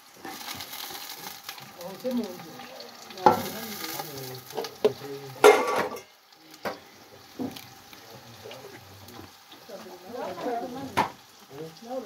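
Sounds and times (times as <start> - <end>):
vegetables sizzling in a pot: 0.0 - 12.0
metal clanks against pot: 4.6 - 6.8.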